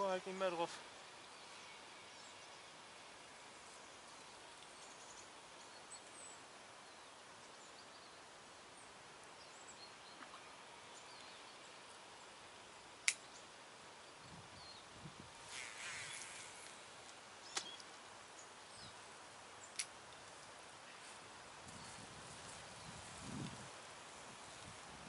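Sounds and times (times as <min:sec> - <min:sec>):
outdoor background hiss: 0:00.0 - 0:25.0
sharp click: 0:13.0 - 0:13.2.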